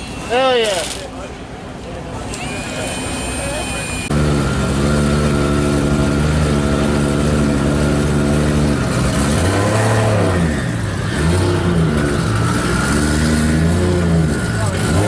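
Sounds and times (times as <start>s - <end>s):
car engine idling and revving: 4.0s - 15.0s.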